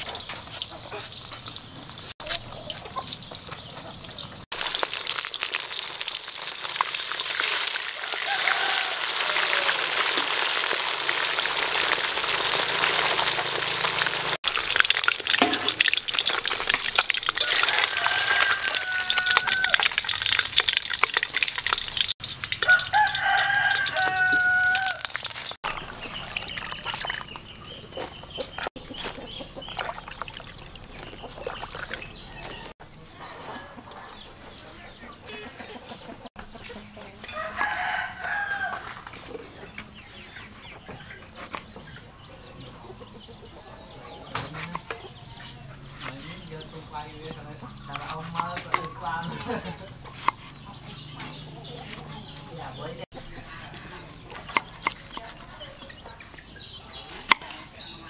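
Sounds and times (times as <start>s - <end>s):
fish sizzling in a wok: 4.5s - 26.6s
rooster crowing: 7.9s - 10.2s, 17.4s - 19.9s, 22.6s - 25.2s, 37.3s - 39.0s.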